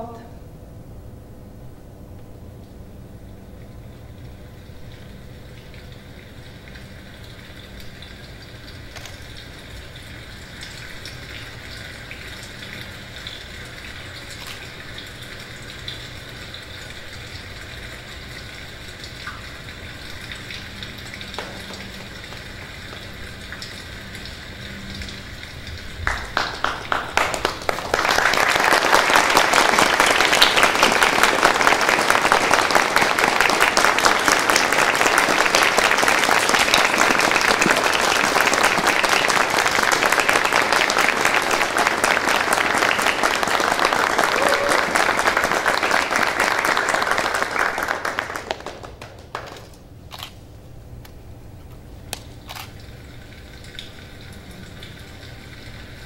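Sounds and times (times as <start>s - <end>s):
audience applauding: 26.0s - 49.8s.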